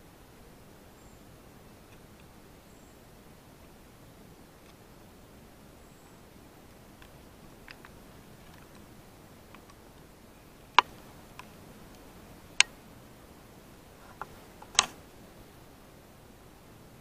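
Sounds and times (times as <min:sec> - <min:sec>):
faint ticks: 0:06.0 - 0:12.8
sharp clicks: 0:07.0 - 0:08.9, 0:09.5 - 0:10.1, 0:10.7 - 0:12.8, 0:14.1 - 0:15.0.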